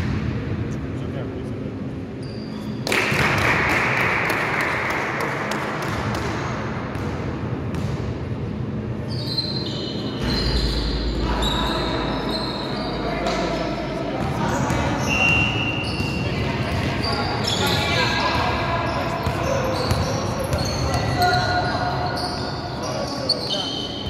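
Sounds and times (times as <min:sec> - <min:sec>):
sneakers squeaking on court: 0:02.2 - 0:02.9, 0:09.0 - 0:24.0
basketball bouncing: 0:05.5 - 0:08.2.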